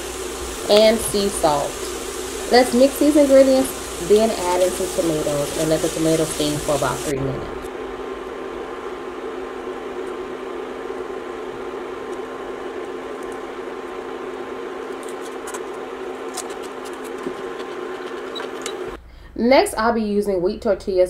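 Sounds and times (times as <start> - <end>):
vegetables steaming in skillet: 0.0 - 19.0.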